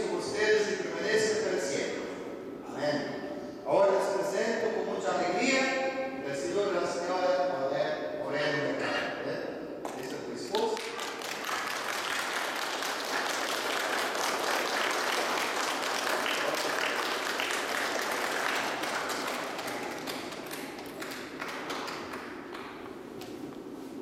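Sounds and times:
crowd applauding: 0:10.6 - 0:23.0.

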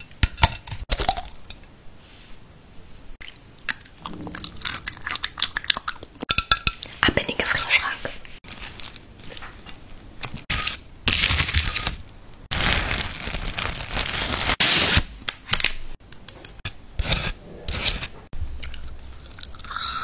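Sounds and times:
packaging crinkling and tearing: 0:08.4 - 0:15.8.

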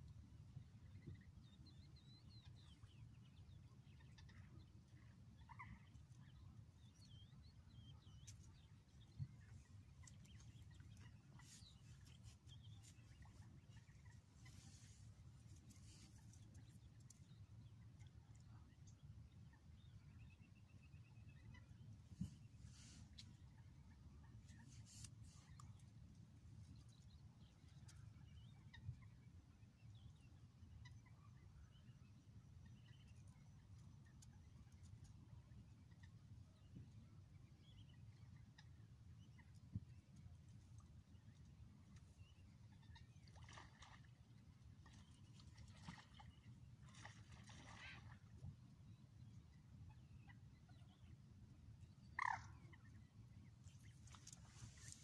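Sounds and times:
faint bird chirps: 0:00.5 - 0:40.2, 0:40.9 - 0:55.0
birds chirping: 0:51.8 - 0:55.0.

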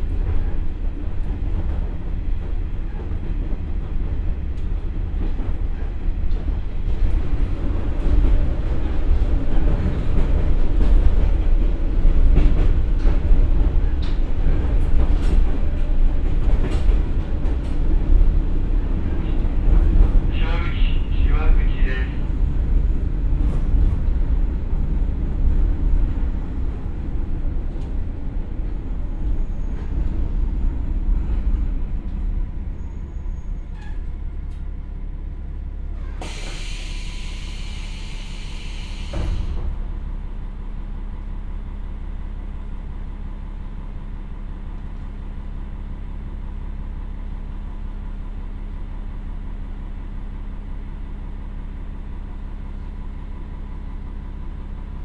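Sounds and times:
diesel railcar engine rumble: 0:00.0 - 0:55.0
brake air hissing: 0:36.2 - 0:39.6
train stopping knock: 0:36.2 - 0:39.9.

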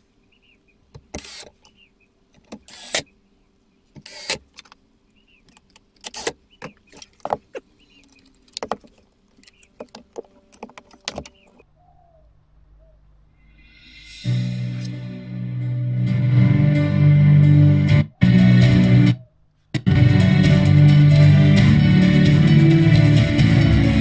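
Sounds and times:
faint steady hum: 0:00.0 - 0:17.5
knocks and clicks handling a box: 0:09.8 - 0:11.5.

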